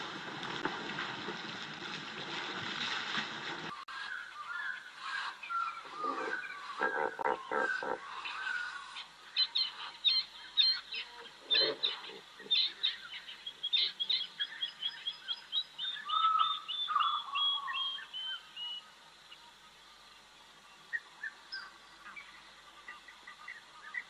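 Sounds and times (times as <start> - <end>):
birds chirping and singing: 3.8 - 18.8.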